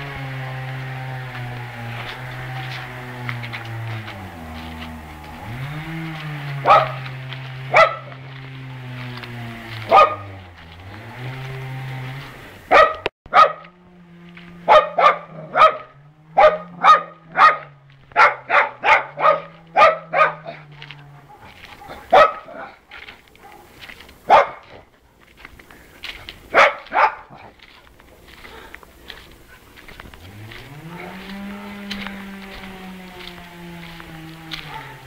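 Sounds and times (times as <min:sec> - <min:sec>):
dog barking: 0:06.6 - 0:08.3, 0:09.8 - 0:10.4, 0:12.7 - 0:13.7, 0:14.6 - 0:24.9, 0:26.5 - 0:27.6, 0:28.4 - 0:28.7, 0:34.5 - 0:35.0.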